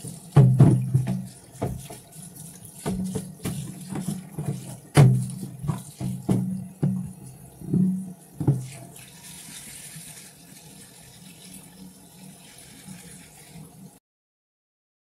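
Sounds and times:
tap running into sink: 0.0 - 9.6
dishes knocking: 2.9 - 8.8.

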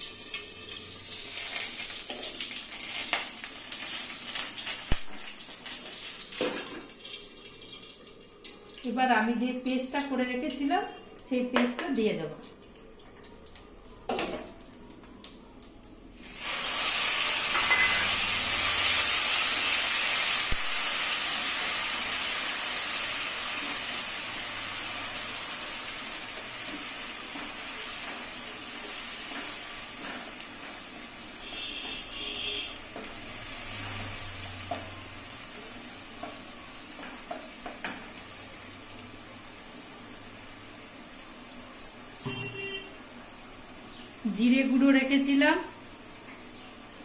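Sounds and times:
paste sizzling in hot oil: 0.0 - 9.2, 16.2 - 47.0.

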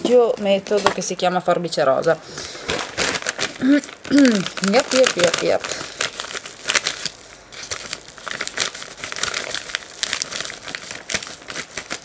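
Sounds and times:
envelope crinkling and rustling: 2.5 - 12.0
scissors cutting envelope: 2.7 - 12.0.

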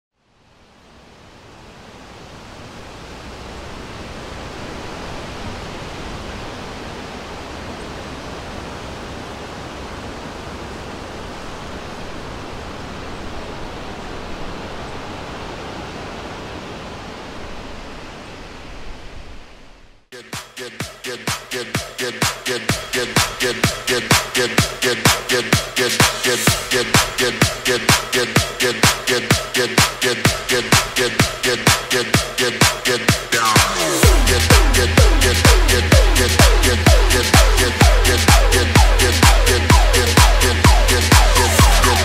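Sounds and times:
steady hiss of noise: 0.1 - 20.1
electronic dance music: 20.2 - 42.0.

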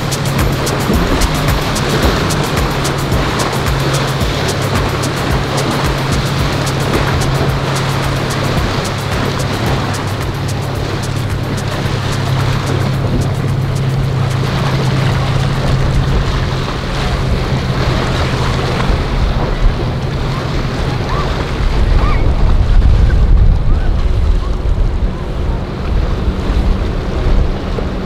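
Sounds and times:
jet boat engine: 0.0 - 28.0
rushing waves: 0.0 - 28.0
wind buffeting microphone: 0.0 - 28.0.

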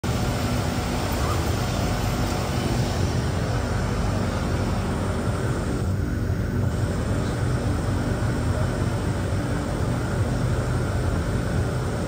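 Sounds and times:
metro train car hum: 0.0 - 12.0.

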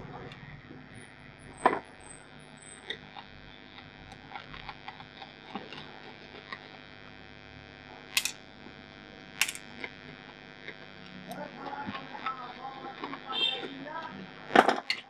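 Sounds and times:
electrical hum: 0.0 - 15.0
screwdriver scraping and ticking: 2.6 - 6.9, 8.1 - 8.7, 9.3 - 15.0.

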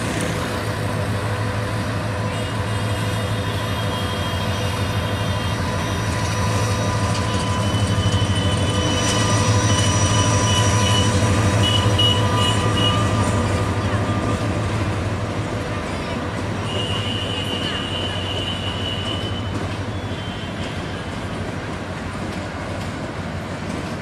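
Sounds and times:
diesel locomotive engine throbbing: 0.0 - 24.0
high-pitched squeals: 3.2 - 14.5.

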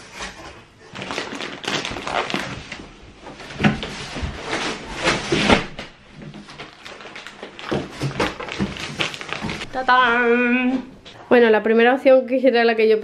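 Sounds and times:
cardboard scraping and rustling: 0.0 - 6.7
plastic crinkling: 0.2 - 10.0.

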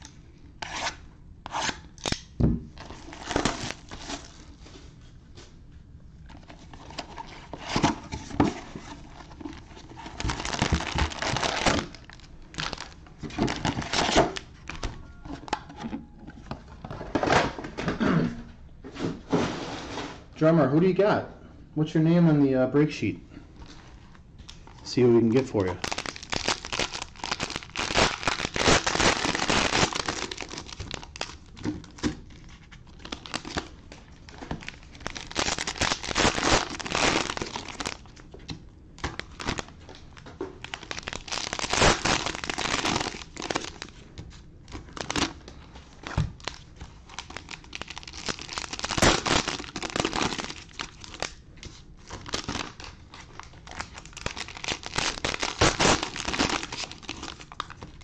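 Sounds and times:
cellophane wrappers crinkling: 8.5 - 15.6, 23.6 - 38.3, 39.0 - 58.0.

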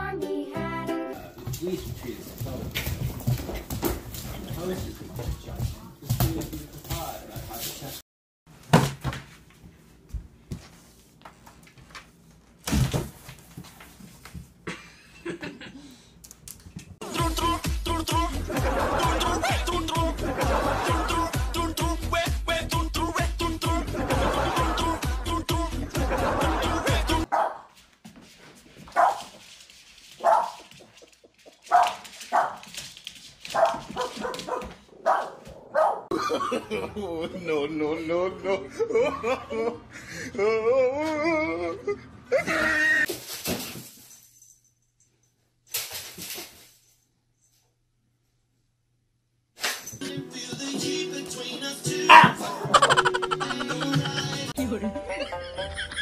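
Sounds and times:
dog barking: 27.3 - 27.7, 29.0 - 29.3, 30.2 - 30.6, 31.7 - 32.6, 33.5 - 36.1, 52.1 - 52.5.

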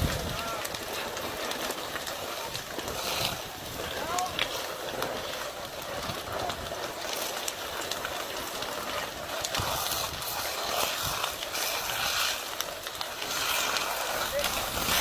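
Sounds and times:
building fire hissing and crackling: 0.0 - 15.0.

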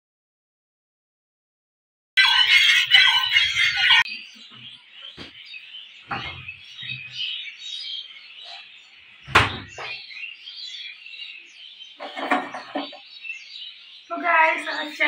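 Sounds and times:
small birds chirping: 2.2 - 15.0
refrigerator door thump: 9.3 - 10.0.

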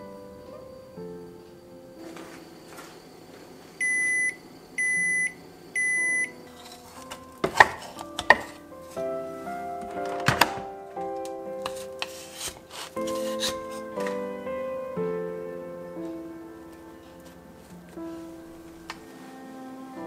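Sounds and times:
rice cooker beeps: 3.8 - 6.4.

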